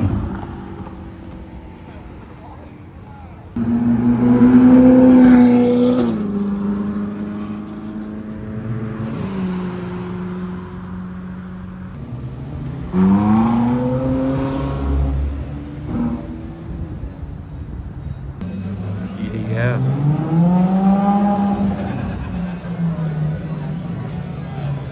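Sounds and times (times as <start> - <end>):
sports car engine revving: 3.6 - 16.6, 18.5 - 24.9.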